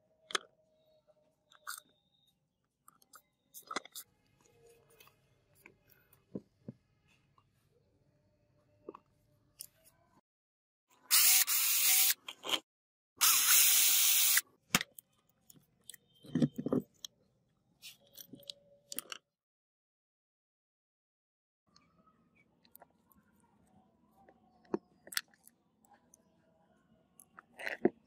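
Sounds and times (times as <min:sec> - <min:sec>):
electric drill-driver running: 0:11.1 - 0:12.2, 0:13.2 - 0:14.4.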